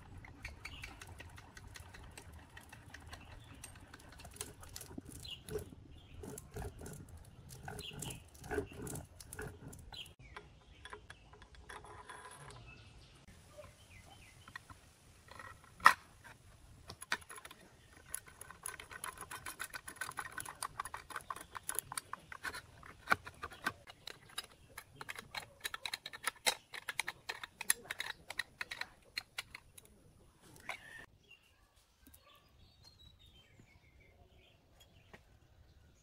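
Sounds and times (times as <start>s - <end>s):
rapid metal clicking and tapping: 0.0s - 10.2s, 16.9s - 29.9s.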